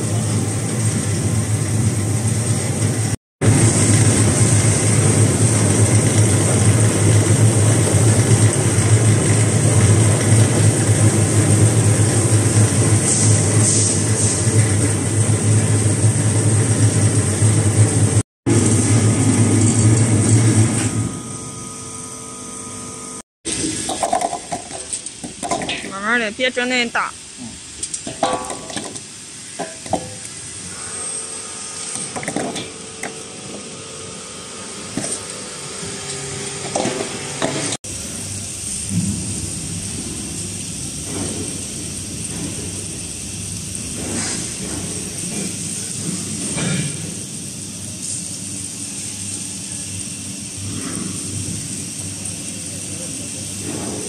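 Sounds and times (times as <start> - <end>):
carrot washing machine humming: 0.0 - 54.0
running water hissing: 23.5 - 54.0.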